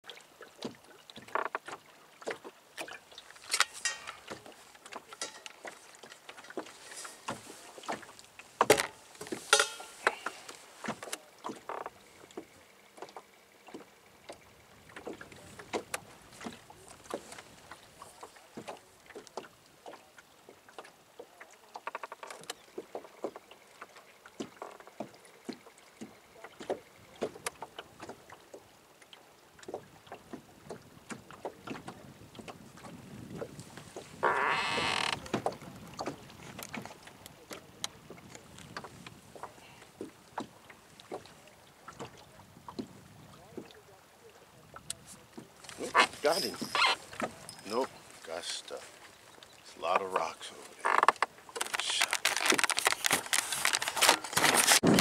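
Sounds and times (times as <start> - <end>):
small waves lapping against boat hull: 0.0 - 55.0.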